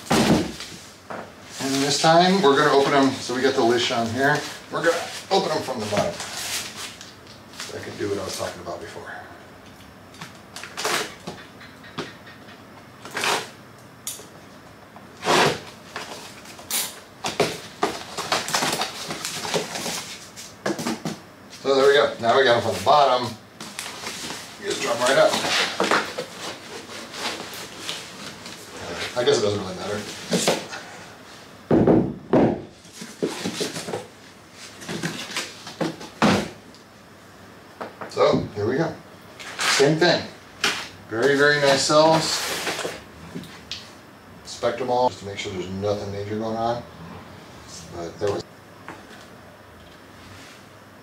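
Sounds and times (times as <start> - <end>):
solid knocks on tile floor: 31.7 - 32.7.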